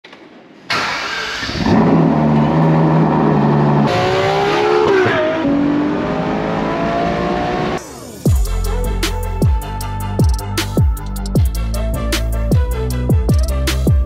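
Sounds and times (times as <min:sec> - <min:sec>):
car engine starting: 0:00.7 - 0:08.3
car engine accelerating hard: 0:00.9 - 0:07.8.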